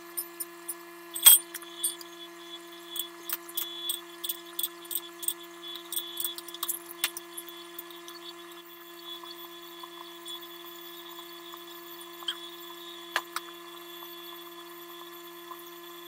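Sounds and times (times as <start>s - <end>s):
faint steady hum: 0.0s - 16.0s
metallic clinks and ticks: 0.1s - 2.1s, 3.0s - 8.2s.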